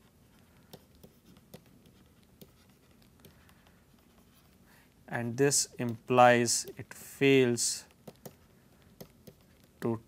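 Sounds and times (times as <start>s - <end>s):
stylus tapping on tablet screen: 0.6s - 4.1s, 7.9s - 10.0s.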